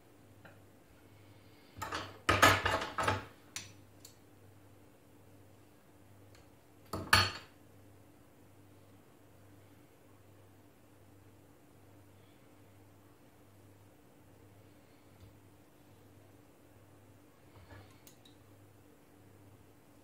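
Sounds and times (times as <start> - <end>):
metal tools clattering on countertop: 1.8 - 3.3.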